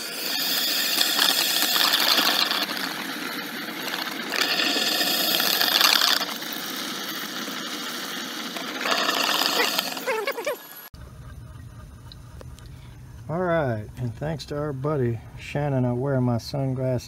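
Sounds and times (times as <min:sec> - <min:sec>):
water splashing and gurgling down pipe: 0:00.0 - 0:10.8.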